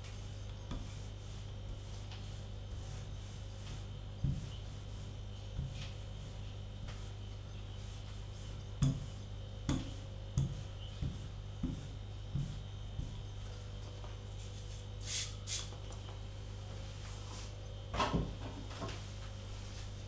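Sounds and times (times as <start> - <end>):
hands rubbing dough on table: 0.0 - 15.7.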